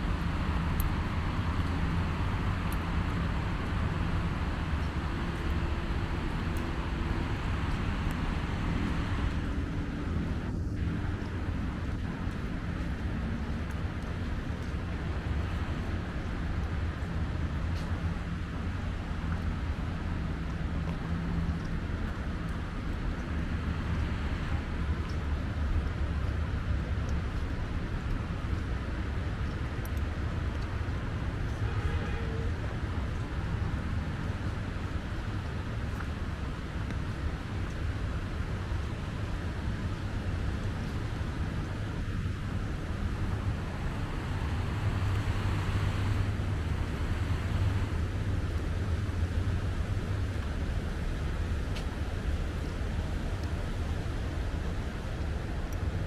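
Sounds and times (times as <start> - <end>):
city traffic rumble: 0.0 - 56.0
faint clicks: 0.7 - 1.0, 29.4 - 31.6.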